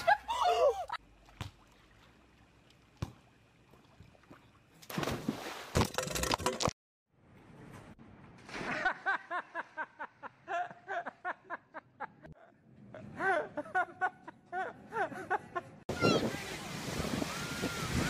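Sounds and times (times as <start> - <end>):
person laughing hard: 0.0 - 1.0, 8.7 - 15.8.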